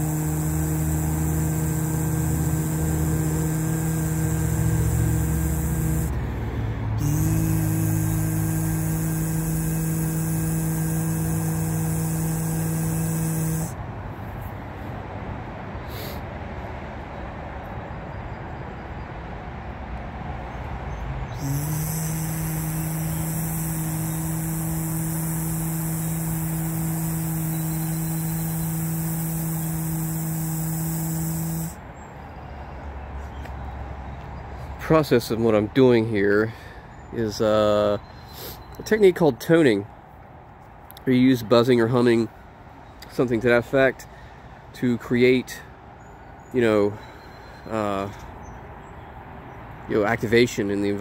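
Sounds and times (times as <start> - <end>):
man humming a low note: 0.0 - 13.8, 21.4 - 31.8.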